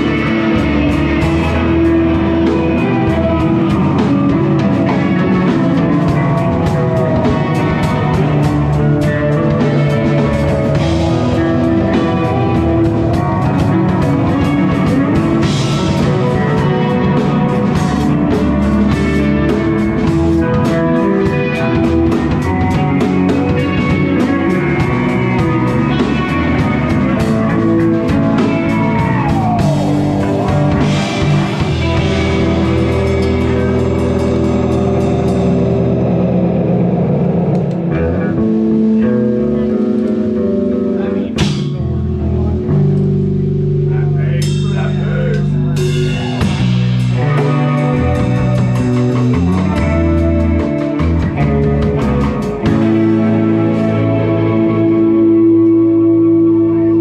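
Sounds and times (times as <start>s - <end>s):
drum kit: 0.0s - 57.0s
electric guitars: 0.0s - 57.0s.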